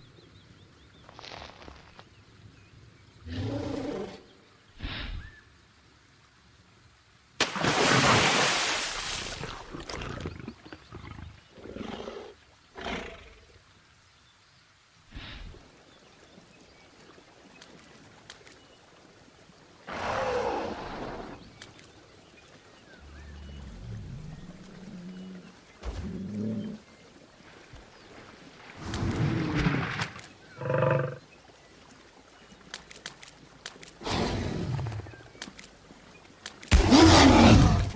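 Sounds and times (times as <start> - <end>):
cartoon dinosaur growls and roars: 36.8 - 37.9.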